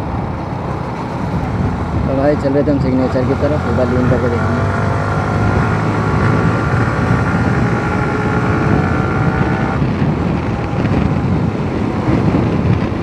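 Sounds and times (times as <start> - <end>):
wind rumbling on microphone: 0.0 - 13.0
motorcycle engine: 0.7 - 12.8.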